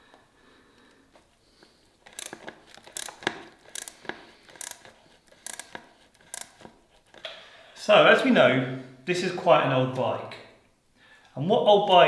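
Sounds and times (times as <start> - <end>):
rustling scraping handling noises: 1.1 - 7.3.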